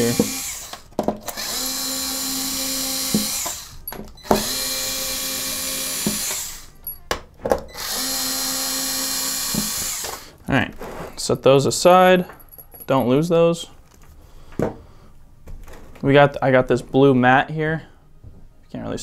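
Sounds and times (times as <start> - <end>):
electric screwdriver whirring: 0.0 - 6.9, 7.7 - 10.3.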